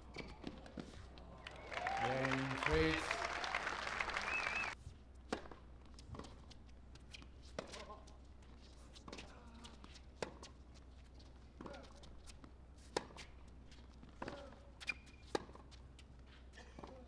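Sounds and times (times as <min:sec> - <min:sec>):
crowd applause: 0:01.3 - 0:04.8
person speaking: 0:02.0 - 0:03.1.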